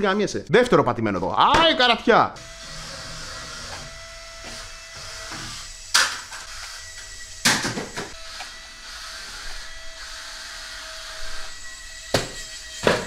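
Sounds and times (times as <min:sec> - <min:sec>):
small suction fan whining: 0:02.4 - 0:11.8.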